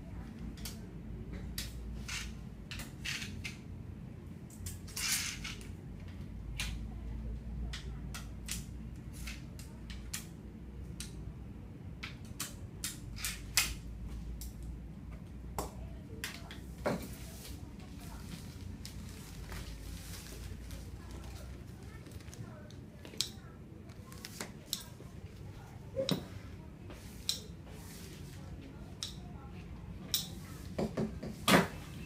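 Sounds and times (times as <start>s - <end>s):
plastic bags crinkling: 17.9s - 22.5s.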